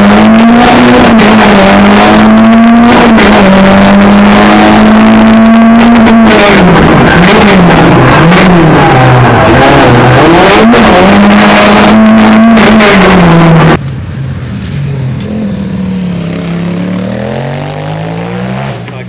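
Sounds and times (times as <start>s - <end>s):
motorcycle engine accelerating: 0.0s - 13.8s, 14.9s - 19.0s
car engine at full throttle: 0.0s - 19.0s.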